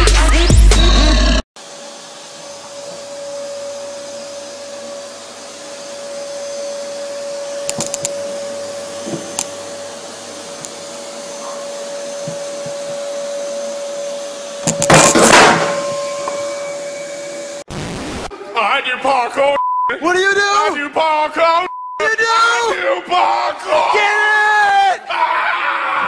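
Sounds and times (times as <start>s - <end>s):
vacuum cleaner whining: 1.6s - 17.7s.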